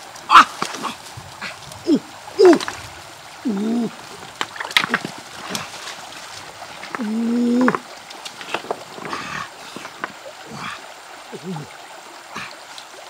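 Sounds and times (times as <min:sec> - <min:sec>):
hands splashing in stream water: 0:00.0 - 0:13.0
stones knocking together: 0:02.4 - 0:03.0, 0:03.9 - 0:10.2.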